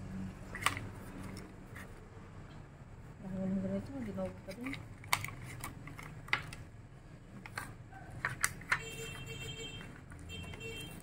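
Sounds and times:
cardboard box and plastic handled: 4.0 - 6.6.

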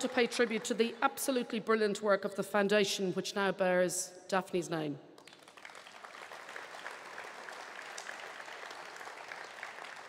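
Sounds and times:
crowd applauding: 0.0 - 0.9, 5.2 - 10.0.

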